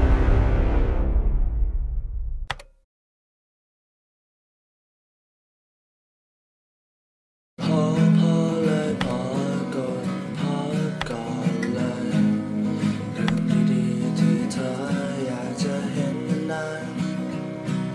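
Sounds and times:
strummed acoustic guitar music: 7.6 - 17.9.

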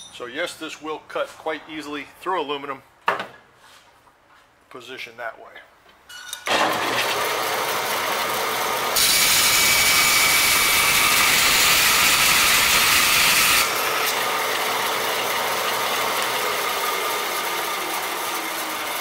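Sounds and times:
bandsaw running: 6.5 - 19.0
saw rasping through metal: 8.9 - 14.3.

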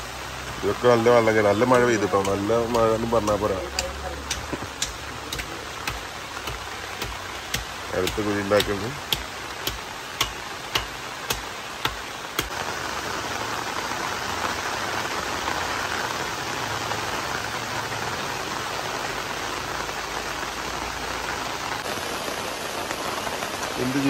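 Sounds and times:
heavy rain: 0.0 - 24.0
sharp taps: 1.7 - 12.5.

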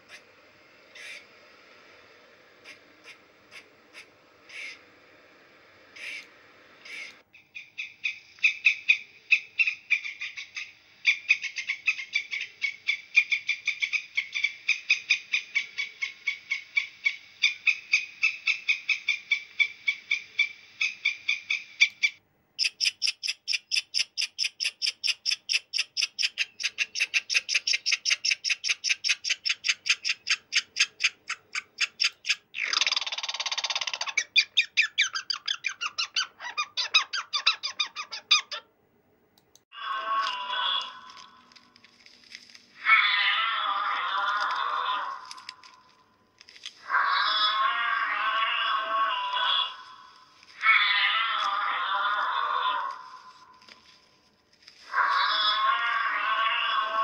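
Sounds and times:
squirrels chattering: 0.9 - 1.2, 2.6 - 4.8, 6.0 - 38.7.

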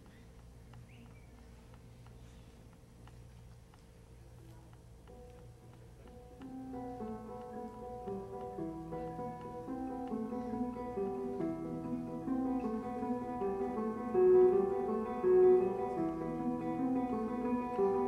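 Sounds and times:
acoustic guitar plucked melody: 6.0 - 18.0.

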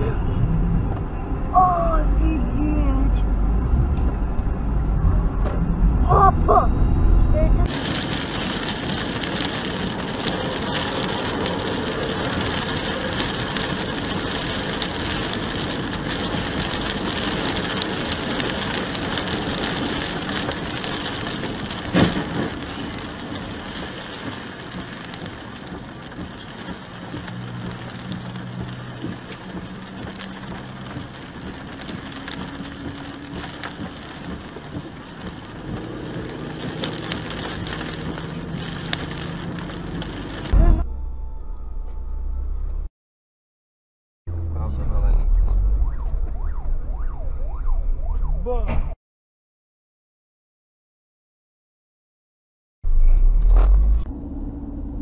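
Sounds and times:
tyres hissing on wet road: 7.6 - 40.6.

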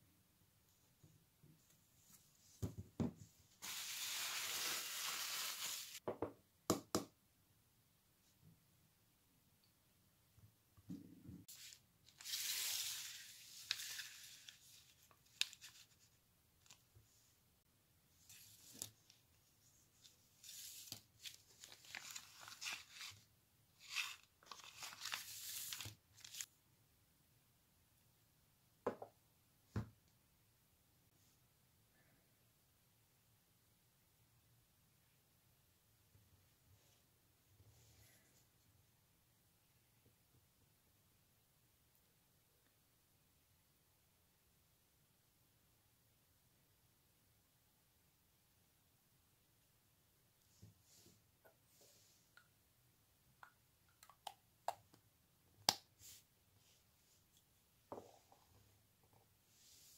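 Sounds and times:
plastic wrapping rustling: 3.6 - 6.0.

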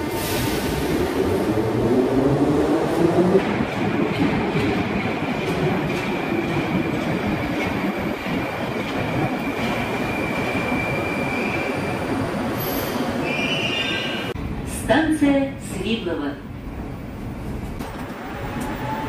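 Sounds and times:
train rumble: 0.0 - 13.2.

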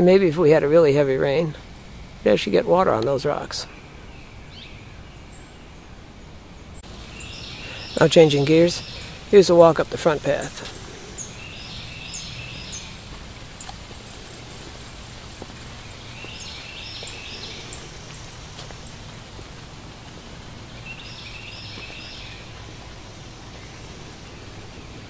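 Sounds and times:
steady low hum: 0.0 - 25.0
songbird singing high notes: 6.8 - 19.0.

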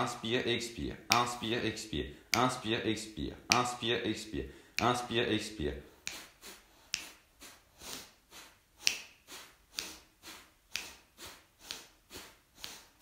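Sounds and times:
man forceful nasal breathing: 2.0 - 2.4, 4.4 - 4.8, 5.8 - 13.0.

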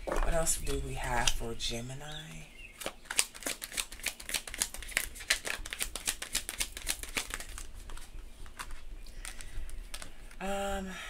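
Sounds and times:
cards being shuffled: 2.8 - 10.4.

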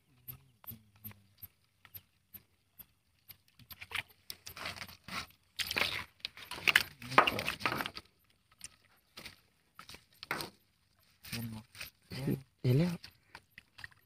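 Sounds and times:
faint regular ticking: 0.1 - 4.5
snails clattering and scraping: 1.3 - 14.0.

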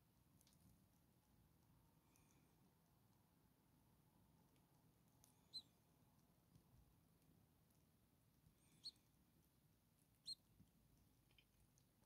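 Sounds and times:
nestlings squeaking: 5.4 - 5.7, 8.6 - 9.0, 10.2 - 10.5.

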